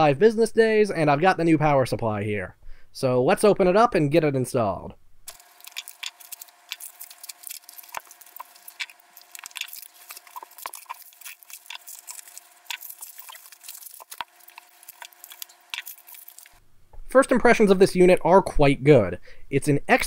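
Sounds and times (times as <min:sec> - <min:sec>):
plastic and bubble wrap crinkling: 0:05.3 - 0:16.6.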